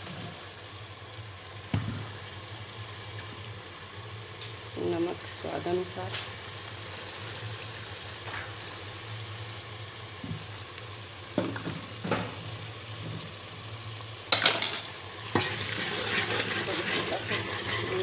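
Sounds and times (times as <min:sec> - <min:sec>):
sauce sizzling in hot oil: 0:00.0 - 0:18.0
ladle clinking and scraping pot: 0:15.4 - 0:18.0.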